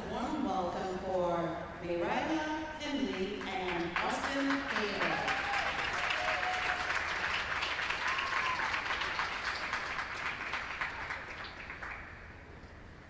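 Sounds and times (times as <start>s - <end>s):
small crowd applauding: 3.1s - 12.6s.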